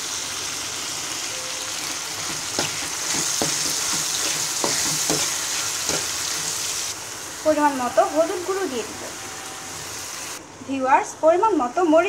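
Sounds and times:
food sizzling in hot oil: 0.0 - 10.4
spatula scraping metal pan: 2.2 - 6.6.

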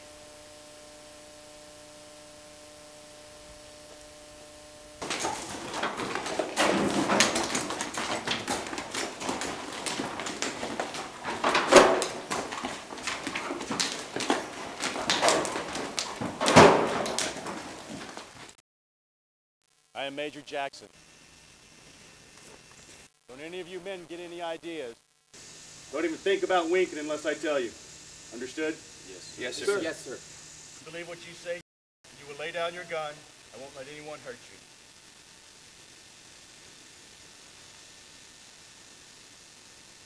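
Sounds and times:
low electrical hum: 0.0 - 18.5
horse moving in wooden stall: 5.0 - 18.6.

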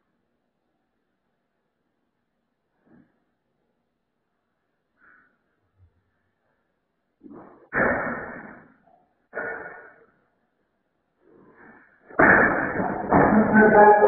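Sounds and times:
chair crashing over: 12.2 - 14.0.

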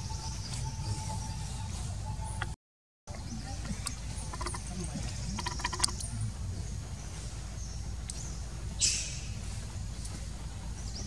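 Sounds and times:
low rumble: 3.1 - 11.0
clicky chirps: 5.3 - 6.1.

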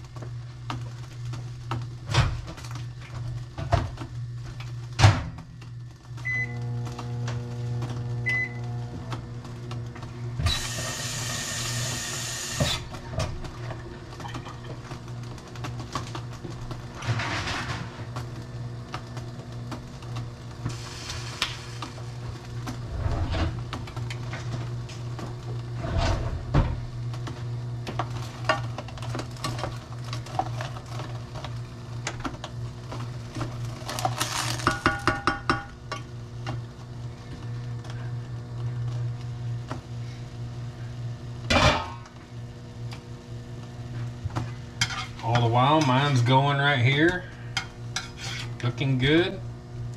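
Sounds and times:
steady low hum: 0.0 - 49.9.

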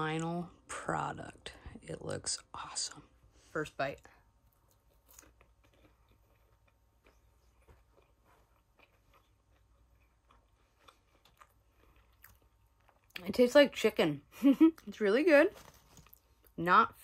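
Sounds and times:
chewing with soft crunches: 4.0 - 13.3.

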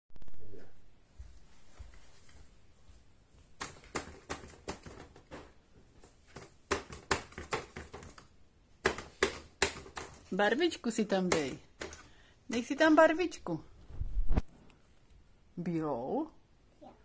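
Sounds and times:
paintbrush tapping on paper: 6.0 - 10.3, 11.3 - 12.2.

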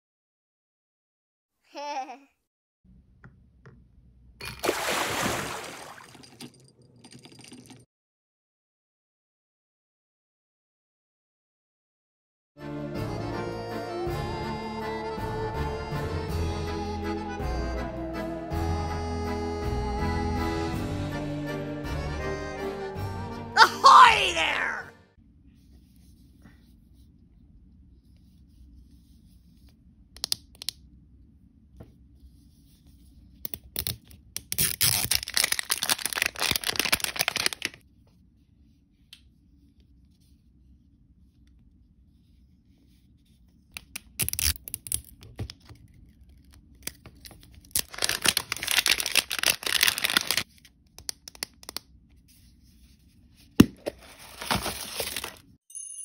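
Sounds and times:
plastic wrapper tearing: 33.6 - 37.8, 43.8 - 51.8, 54.0 - 55.5.

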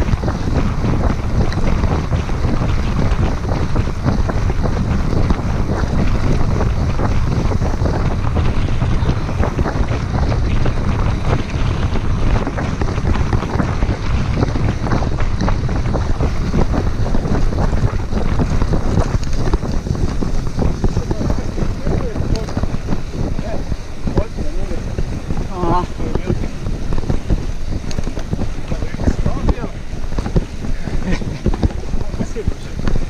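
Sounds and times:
bike tyres rolling on gravel: 0.0 - 33.0
wind buffeting microphone: 0.0 - 33.0.

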